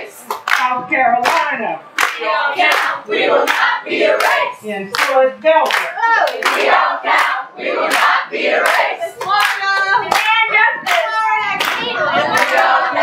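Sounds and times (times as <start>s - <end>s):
group of people singing: 0.0s - 0.3s, 2.0s - 4.8s, 6.0s - 10.2s, 11.0s - 13.0s
hands clapping in steady beat: 0.2s - 12.9s.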